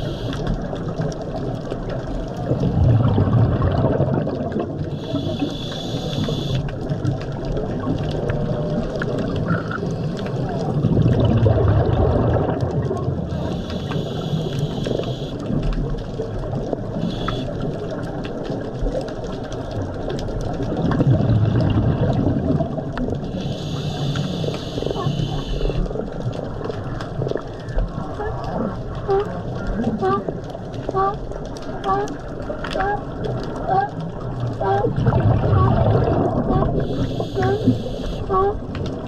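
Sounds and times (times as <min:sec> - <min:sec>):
underwater water noise: 0:00.0 - 0:39.0
bubbling exhalation: 0:02.4 - 0:05.3, 0:09.1 - 0:13.6, 0:20.7 - 0:23.2, 0:34.6 - 0:38.5
diver breathing through regulator: 0:04.9 - 0:06.6, 0:13.4 - 0:15.4, 0:23.3 - 0:25.8, 0:36.8 - 0:38.3.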